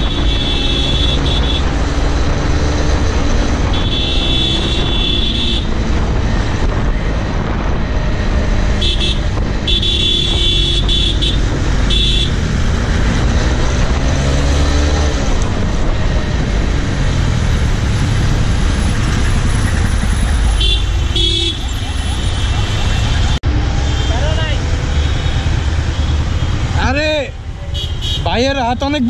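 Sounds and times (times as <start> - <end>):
vehicle horns honking: 0.0 - 1.7, 3.7 - 5.7, 8.8 - 12.4, 20.6 - 21.9, 27.7 - 28.7
wind noise: 0.0 - 20.6
motorcycle engine: 0.0 - 28.2.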